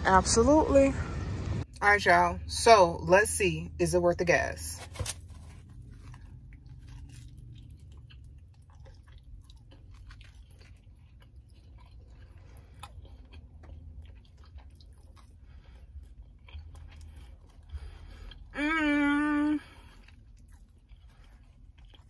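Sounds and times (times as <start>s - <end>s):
low steady hum: 0.0s - 22.0s
person chewing crunchy food: 4.8s - 22.0s.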